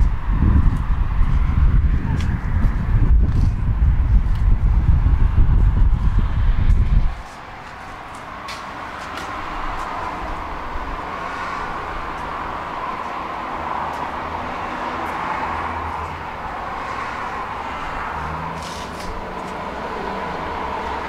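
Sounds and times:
low rumble: 0:00.0 - 0:07.2.

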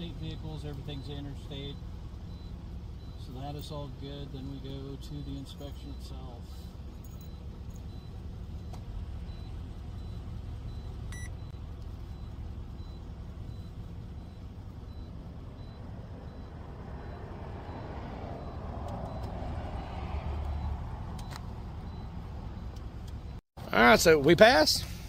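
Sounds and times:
faint high beeps: 0:00.0 - 0:19.4
vehicle engine idling: 0:00.0 - 0:25.0.

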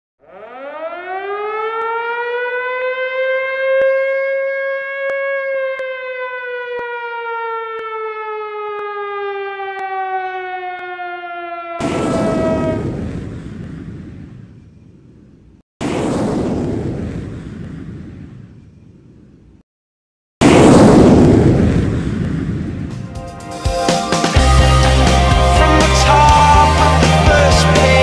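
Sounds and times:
loud burst of rushing noise: 0:20.4 - 0:25.2.

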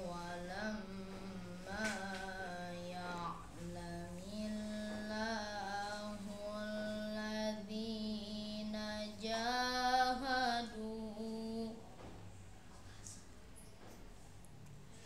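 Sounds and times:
boy chanting melodically: 0:00.0 - 0:11.8.

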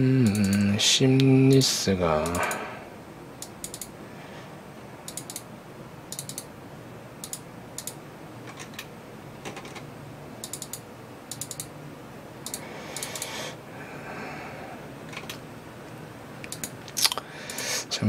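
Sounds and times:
keyboard and mouse clicks: 0:00.3 - 0:00.7, 0:03.4 - 0:03.9, 0:05.1 - 0:05.4, 0:06.1 - 0:06.5, 0:07.2 - 0:09.8, 0:10.4 - 0:11.7, 0:12.4 - 0:13.3, 0:15.1 - 0:15.4, 0:16.4 - 0:17.6.

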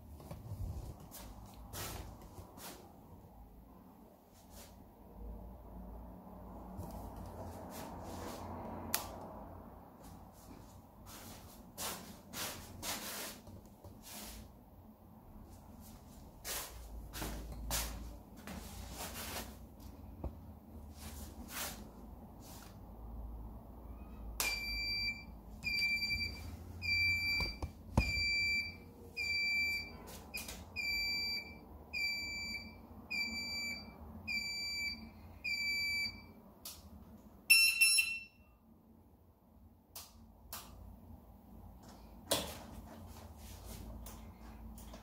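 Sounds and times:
multi-tone beep: 0:24.5 - 0:29.9, 0:37.5 - 0:38.5.

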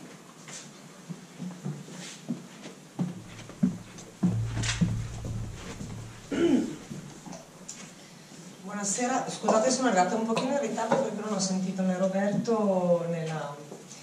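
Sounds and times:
footsteps and clothing rustle: 0:00.4 - 0:07.2
knocks and shuffles: 0:03.0 - 0:07.2.

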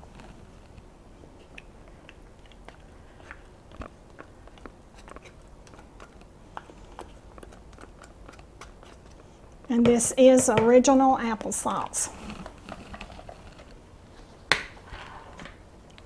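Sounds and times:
soft clicks and wet scrapes: 0:00.1 - 0:09.8
spatula scraping plastic cup: 0:12.1 - 0:13.8.

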